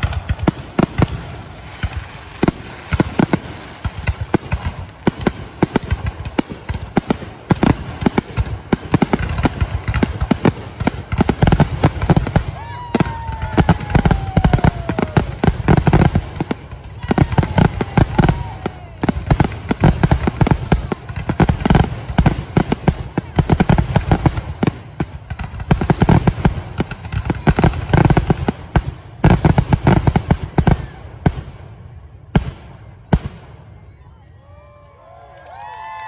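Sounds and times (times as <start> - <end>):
fireworks booming and crackling: 0.0 - 34.1
descending firework whistle: 12.5 - 15.4, 17.0 - 19.2.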